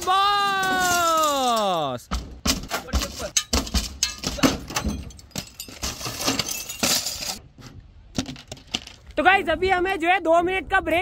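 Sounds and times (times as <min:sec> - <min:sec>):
glass pieces clinking: 0:00.6 - 0:01.8, 0:03.3 - 0:07.4
windscreen glass breaking: 0:02.5 - 0:07.4.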